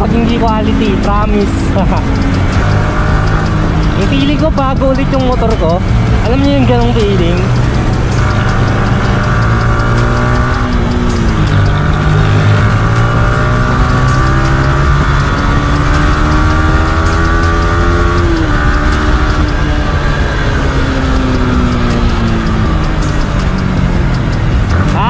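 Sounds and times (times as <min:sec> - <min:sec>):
motorcycle engine accelerating: 0:00.0 - 0:25.0.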